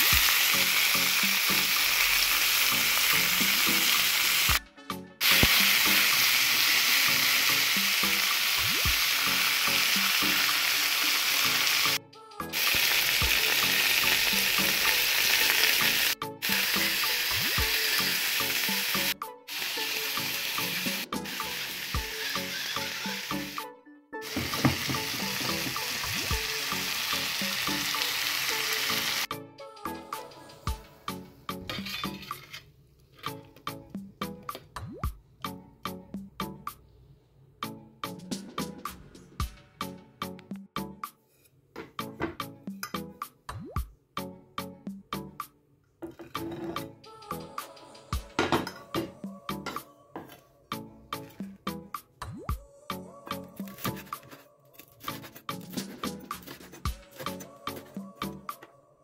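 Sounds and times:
vegetables sizzling in oil: 0.0s - 4.6s, 5.2s - 12.0s, 12.6s - 23.6s, 24.2s - 29.3s.

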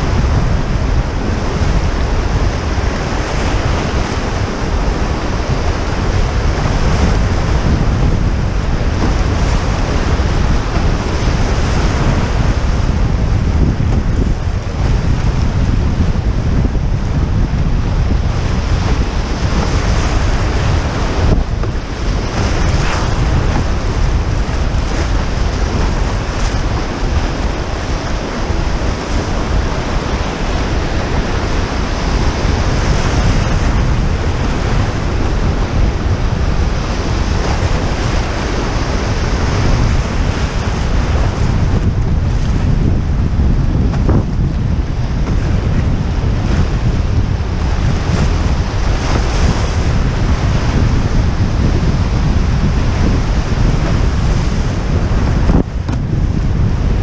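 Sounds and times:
whitewater rushing: 0.0s - 57.0s
wind rumble on microphone: 0.0s - 57.0s.

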